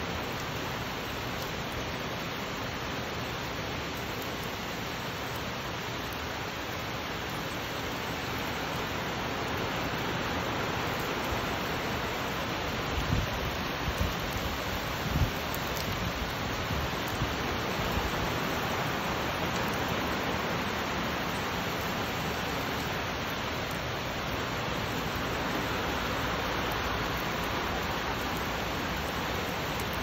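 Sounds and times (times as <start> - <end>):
heavy rain on foliage: 0.0 - 30.0.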